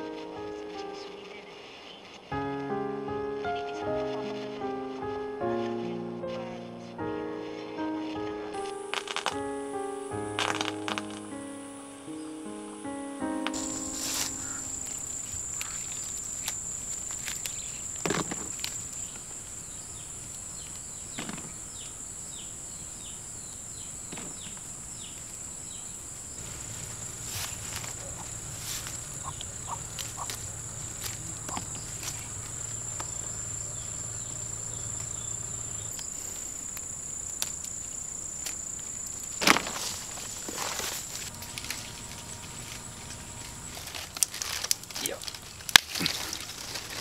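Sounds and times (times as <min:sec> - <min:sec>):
insect chorus: 0:00.0 - 0:47.0
leaves rustling: 0:00.0 - 0:47.0
low hum: 0:11.0 - 0:47.0
peppers snapping off plants: 0:26.4 - 0:33.3, 0:39.3 - 0:42.2, 0:43.8 - 0:47.0.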